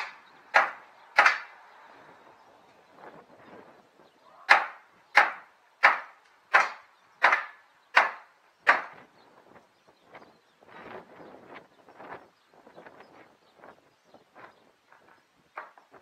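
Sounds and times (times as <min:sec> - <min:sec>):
hammer striking wooden planks: 0:00.0 - 0:01.6, 0:04.5 - 0:09.0.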